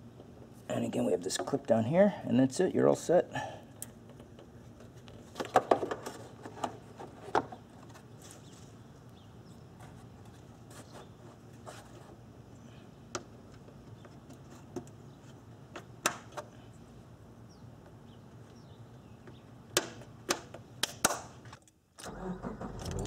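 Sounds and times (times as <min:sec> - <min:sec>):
car engine starting and running: 0:22.0 - 0:23.0.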